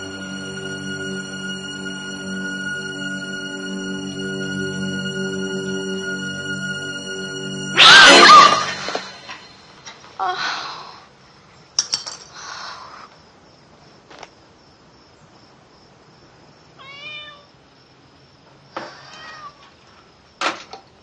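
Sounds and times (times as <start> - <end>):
cat meowing: 7.8 - 8.8, 16.8 - 17.5, 19.0 - 19.7.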